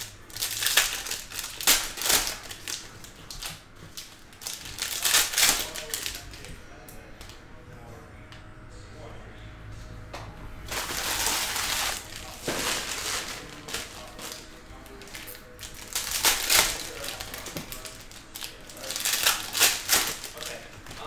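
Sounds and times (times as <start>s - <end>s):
foil wrappers crinkling and tearing: 0.0s - 6.5s, 10.7s - 21.0s.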